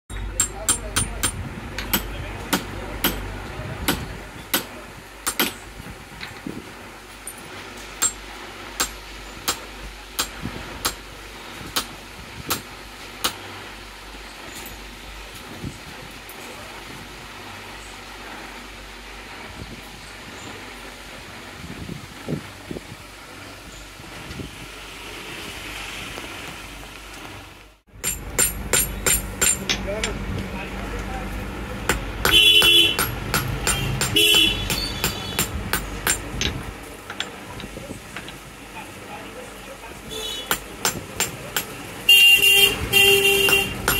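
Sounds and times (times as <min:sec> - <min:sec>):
hammer tapping metal chisel: 0:00.1 - 0:03.2, 0:28.0 - 0:30.2, 0:31.9 - 0:36.3.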